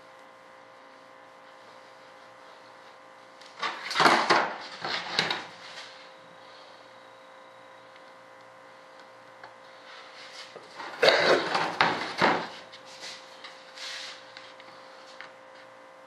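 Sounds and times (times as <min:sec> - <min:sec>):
stiff sheet scraping on workbench: 0:11.4 - 0:14.3.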